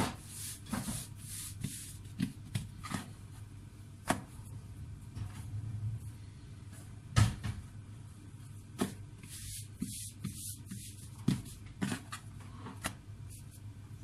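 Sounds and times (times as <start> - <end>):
low steady hum: 0.0 - 14.0
dough patted on stone countertop: 4.0 - 4.4, 8.7 - 12.2.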